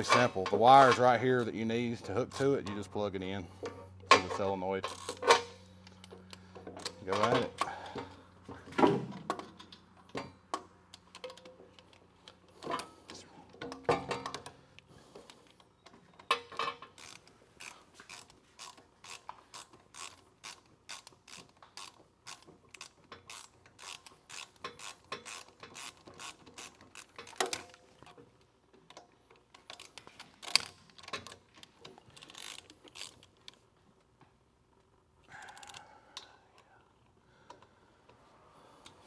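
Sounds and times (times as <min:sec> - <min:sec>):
ratchet wrench clicking: 0:04.9 - 0:07.0, 0:16.9 - 0:27.8, 0:32.2 - 0:33.6, 0:35.3 - 0:35.8.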